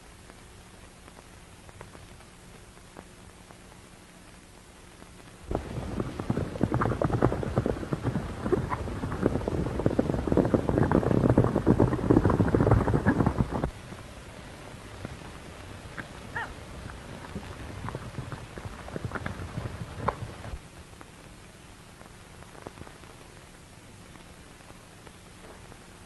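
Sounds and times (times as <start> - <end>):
horses galloping: 5.5 - 20.6.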